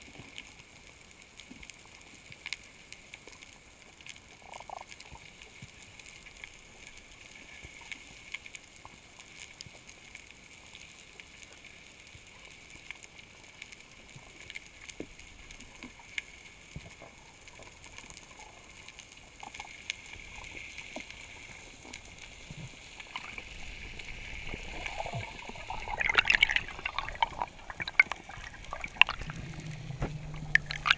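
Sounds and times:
faint clicks and crackles: 0.0 - 30.9
water bubbling and gurgling: 3.8 - 8.2, 13.9 - 30.9
underwater hiss: 19.6 - 30.9.

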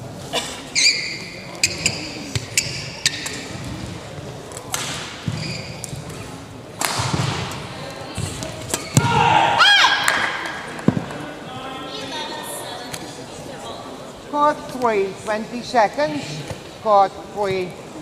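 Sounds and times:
squeaks on a court floor: 0.7 - 3.6, 5.2 - 6.2, 8.2 - 9.1.

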